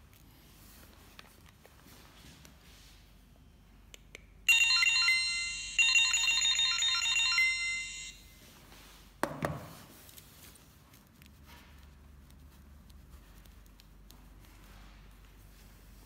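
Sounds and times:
reader beeping rapidly: 4.5s - 8.2s.

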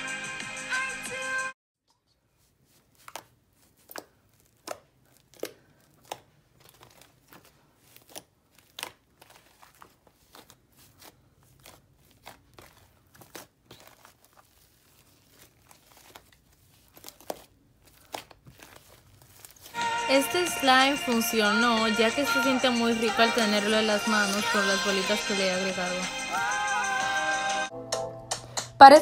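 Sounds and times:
slime with beads squeezed by hand: 2.8s - 19.8s.

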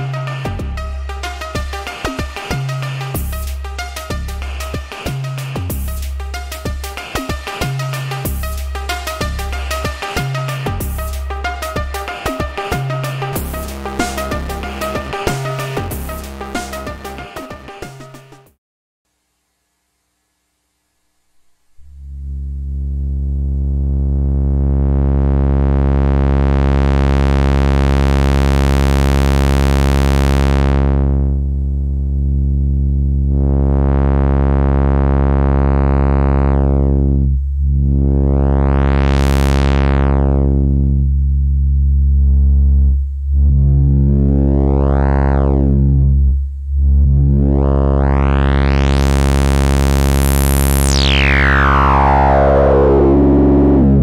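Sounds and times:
filtered synthesizer drone: 0.0s - 18.2s, 21.3s - 54.0s
resonant whistling filter sweep: 50.2s - 54.0s.

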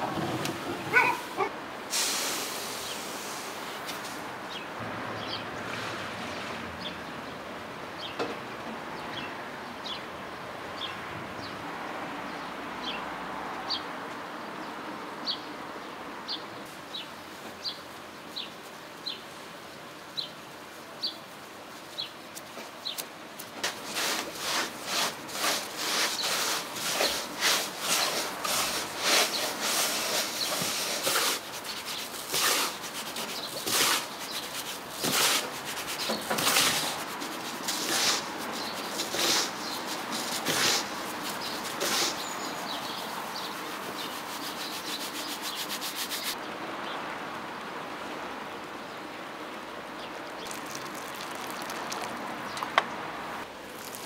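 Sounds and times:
soft outdoor hiss: 0.0s - 54.0s
gritty rustle of dry grains: 23.6s - 46.4s, 50.4s - 52.1s, 53.6s - 54.0s.

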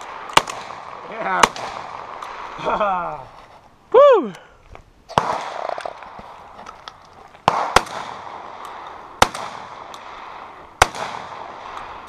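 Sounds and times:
shotgun shots echoing: 0.0s - 2.6s, 5.1s - 6.5s, 7.4s - 12.0s.

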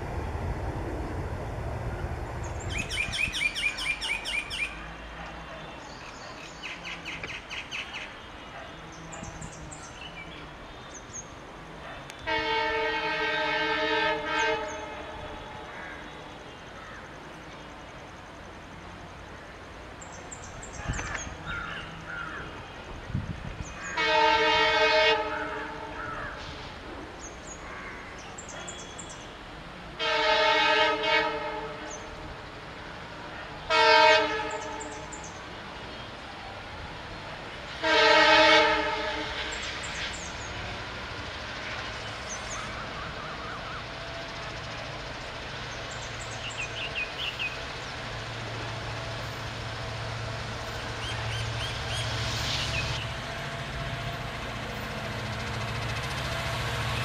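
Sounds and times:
diesel engine low rumble: 0.0s - 3.8s
locomotive multi-tone horn: 12.1s - 16.5s, 24.0s - 26.7s, 28.6s - 32.2s, 33.6s - 35.2s, 37.7s - 39.8s.

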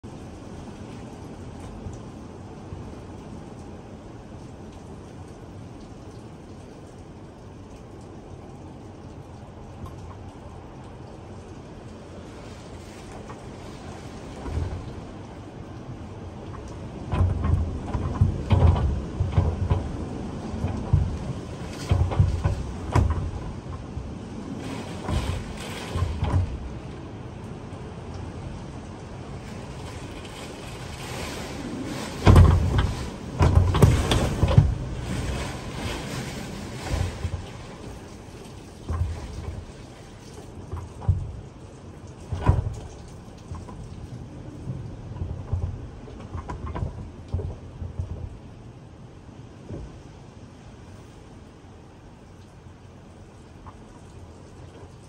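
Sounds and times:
heavy rain: 0.0s - 55.0s
wind gusting on microphone: 11.2s - 55.0s.

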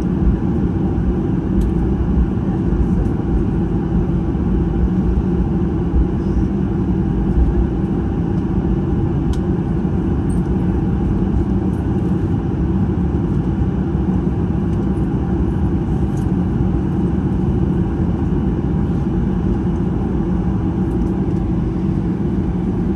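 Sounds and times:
aircraft engines idling rumble: 0.0s - 22.9s.

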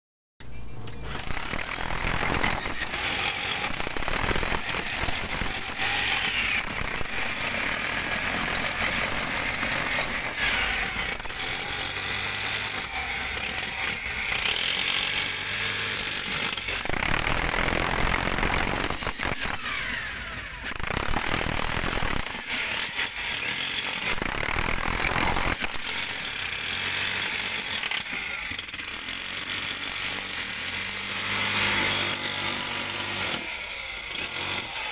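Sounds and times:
jackhammer hammering into rock: 1.1s - 34.9s.

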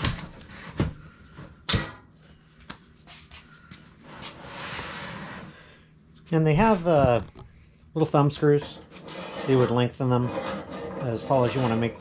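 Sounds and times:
scraping rustle: 8.3s - 12.0s.

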